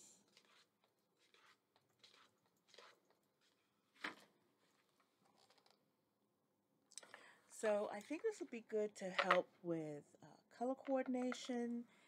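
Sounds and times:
book pages rustling: 0:00.3 - 0:05.8.

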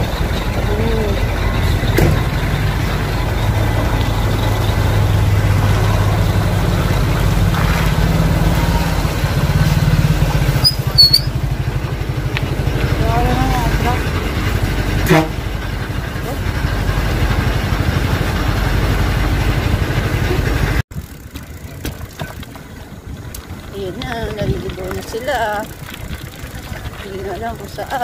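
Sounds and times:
vehicle engine hum: 0:00.0 - 0:28.0
brief high squeak: 0:10.6 - 0:11.4.

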